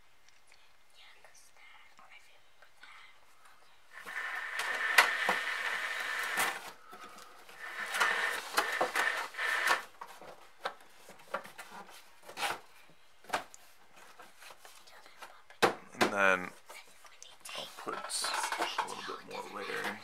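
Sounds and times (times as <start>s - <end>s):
loud hissing rustling noise: 3.9s - 9.9s.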